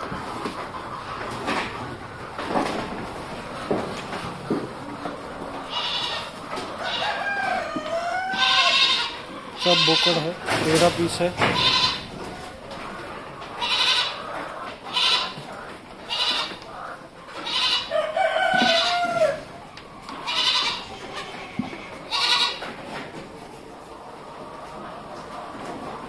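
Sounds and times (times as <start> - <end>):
goat kids bleating: 5.6 - 7.0, 7.6 - 10.4, 11.5 - 12.1, 13.6 - 16.7, 17.3 - 17.9, 18.6 - 19.4, 20.1 - 22.7.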